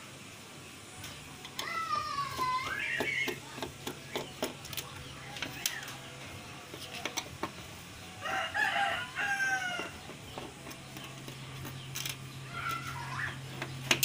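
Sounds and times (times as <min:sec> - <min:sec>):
rooster crowing: 0:08.2 - 0:10.0.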